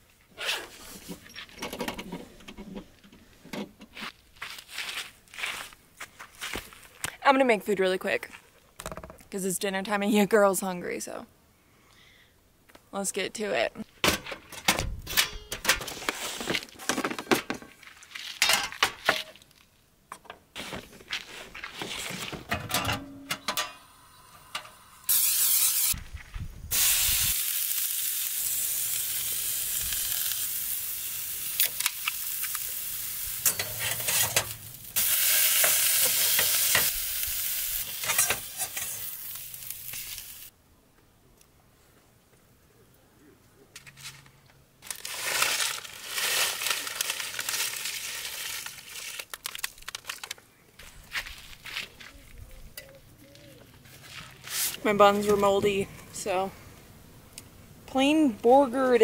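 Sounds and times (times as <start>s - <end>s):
clicks and knocks of stove and pan: 22.5s - 23.8s
burger patty sizzling: 26.7s - 40.5s.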